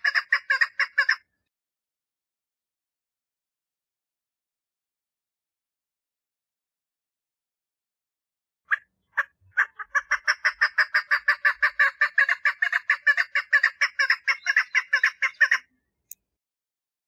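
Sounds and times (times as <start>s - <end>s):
partridge clucking call: 0.0s - 1.2s, 8.7s - 15.7s.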